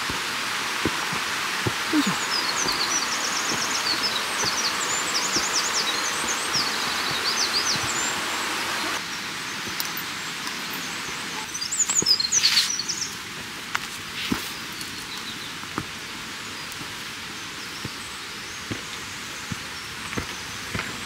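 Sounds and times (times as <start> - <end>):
crunching footsteps: 0.0 - 9.0
songbirds chirping and trilling: 0.0 - 13.4, 14.0 - 21.0
steady hiss: 0.0 - 21.0.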